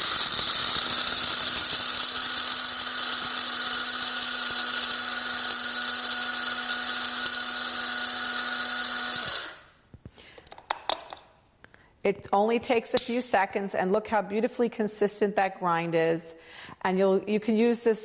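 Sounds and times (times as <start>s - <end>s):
coffee grinder running: 0.0s - 9.8s.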